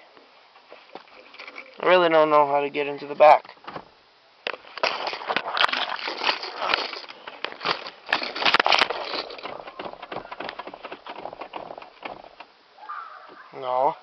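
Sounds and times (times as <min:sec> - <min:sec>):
fabric rustling and scraping: 0:04.6 - 0:12.5.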